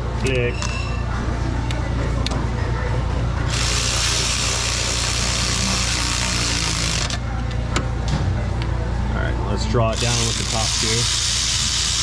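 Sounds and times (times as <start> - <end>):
cordless ratchet running: 3.5 - 7.2, 9.9 - 12.0.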